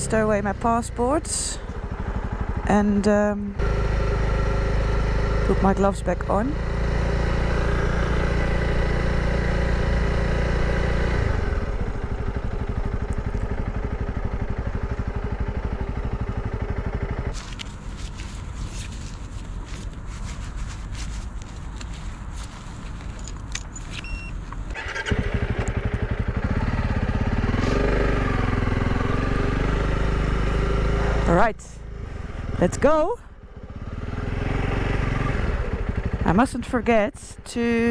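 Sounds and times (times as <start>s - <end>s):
motorcycle engine idling and revving: 0.0s - 37.9s
gloves rustling and clicking: 17.3s - 24.7s.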